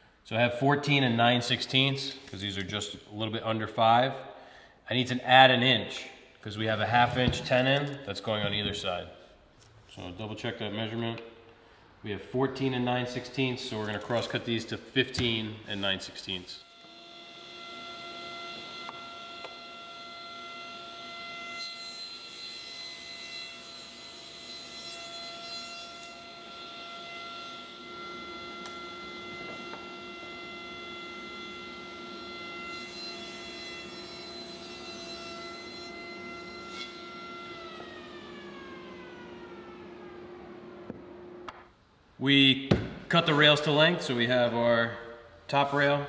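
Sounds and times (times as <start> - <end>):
saw cutting through wood: 15.7 - 40.6
table saw whine: 15.7 - 41.5.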